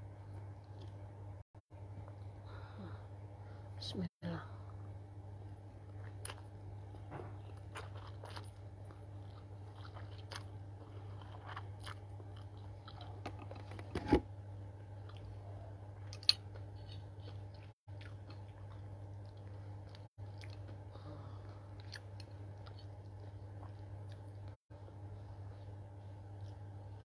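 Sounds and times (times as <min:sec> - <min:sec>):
low hum: 0:00.0 - 0:27.0
person chewing noodles: 0:05.8 - 0:13.6, 0:15.0 - 0:24.6, 0:25.2 - 0:27.0.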